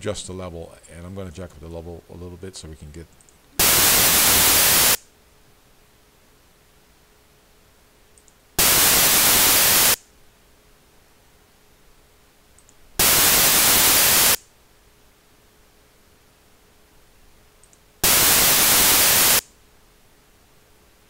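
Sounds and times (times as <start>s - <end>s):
hiss-like test noise bursts: 3.6s - 5.0s, 8.6s - 10.0s, 13.0s - 14.4s, 18.0s - 19.5s.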